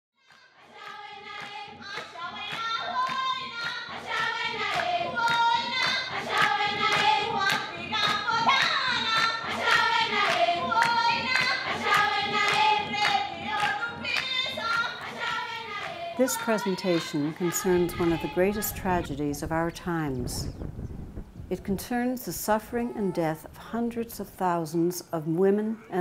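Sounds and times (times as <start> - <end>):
women singing in chorus: 0.2 - 19.3
rhythmic hand clapping: 0.3 - 17.6.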